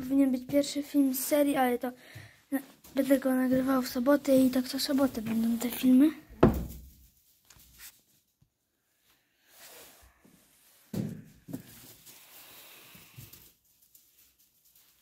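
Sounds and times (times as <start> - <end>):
quiet footsteps: 0.0 - 8.6
short thump: 6.4 - 6.8.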